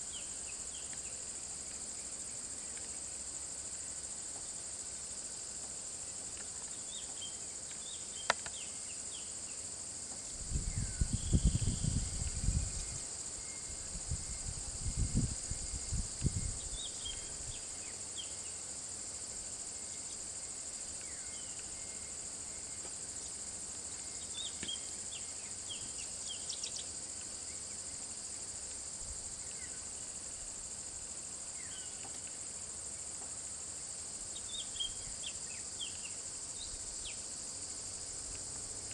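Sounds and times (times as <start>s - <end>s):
insects droning: 0.0s - 38.9s.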